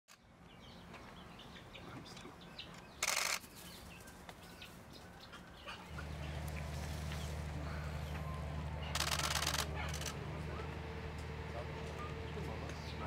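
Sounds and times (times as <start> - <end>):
birds chirping faintly: 0.1 - 13.0
low steady hum: 5.9 - 13.0.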